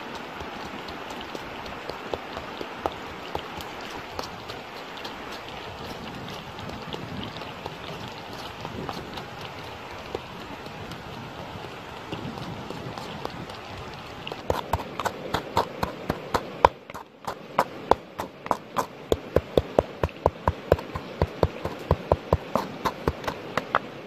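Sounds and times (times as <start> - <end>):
pestle pounding in bowl: 14.4 - 23.9.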